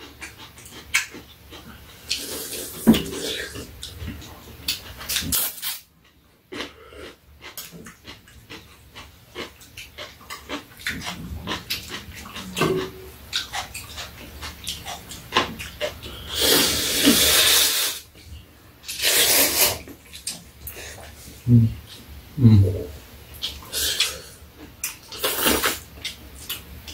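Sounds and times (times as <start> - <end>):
chopsticks clicking and chewing: 0.0 - 2.4, 3.1 - 16.3, 23.4 - 26.9
slurping noodles: 16.2 - 18.0, 18.9 - 19.9, 25.2 - 25.8.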